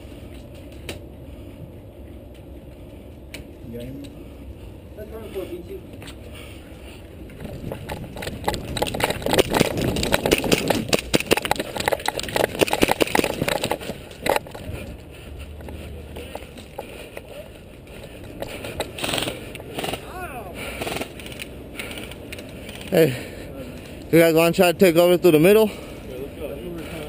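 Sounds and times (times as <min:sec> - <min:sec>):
footsteps running on dirt: 0:07.4 - 0:17.4.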